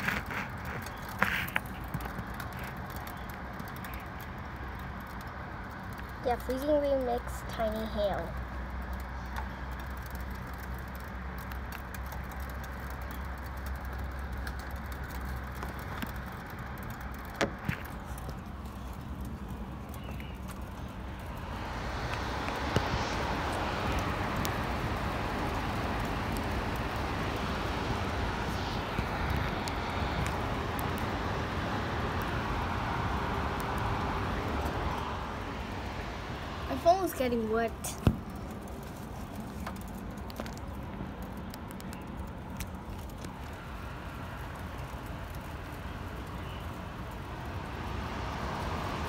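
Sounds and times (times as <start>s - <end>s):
ice pellets ticking on metal: 0.0s - 21.6s
steady low rumble: 0.0s - 49.0s
freezing rain hiss: 5.8s - 49.0s.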